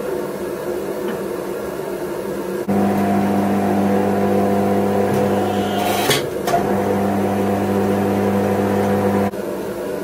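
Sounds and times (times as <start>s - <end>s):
press motor humming: 2.7s - 9.3s.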